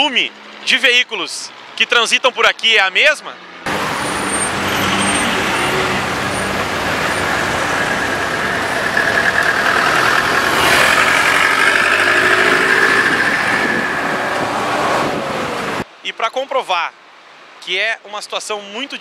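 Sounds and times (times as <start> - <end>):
traffic engines idling: 3.0 - 15.9.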